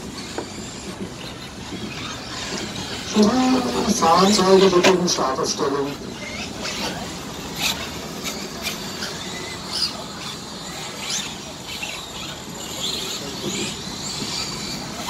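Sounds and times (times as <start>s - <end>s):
outdoor background noise: 0.0s - 15.0s
rc truck motors whining: 0.0s - 15.0s.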